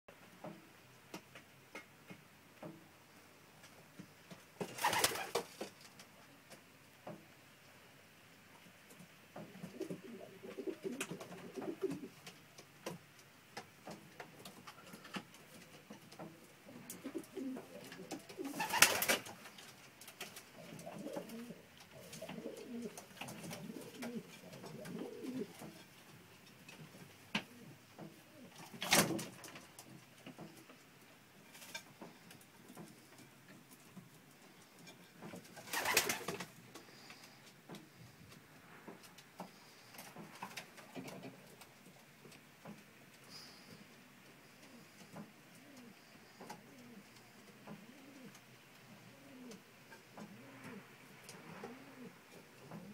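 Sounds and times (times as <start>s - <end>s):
pigeons cooing: 9.4s - 12.3s, 15.8s - 19.5s, 20.5s - 25.8s, 44.4s - 52.9s.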